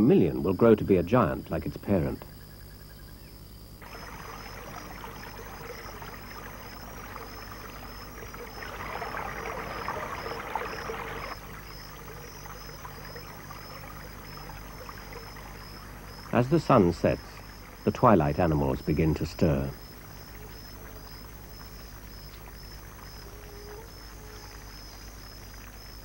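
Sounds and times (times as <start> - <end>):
water rushing over rocks: 3.8 - 18.0.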